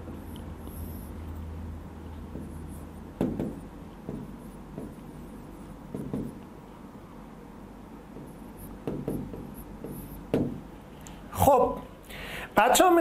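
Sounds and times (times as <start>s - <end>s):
pen tapping on glass: 3.2s - 5.0s.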